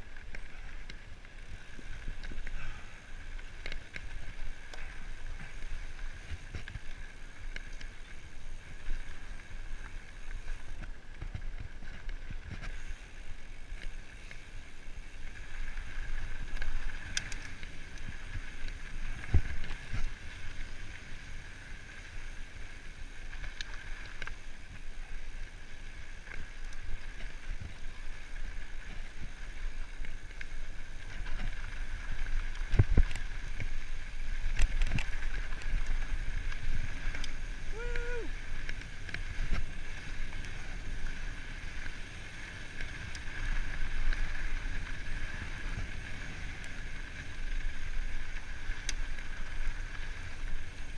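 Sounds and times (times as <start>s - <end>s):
bike tyre and frame noise: 0.0s - 50.9s.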